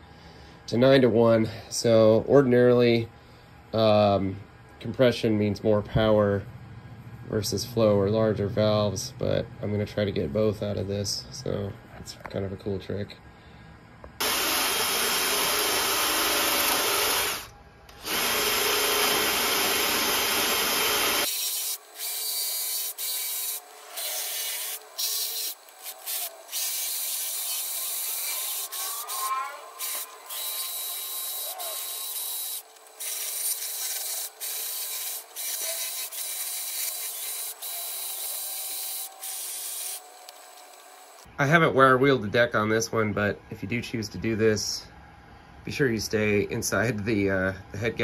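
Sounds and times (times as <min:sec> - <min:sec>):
drill grinding metal: 0:14.2 - 0:41.2.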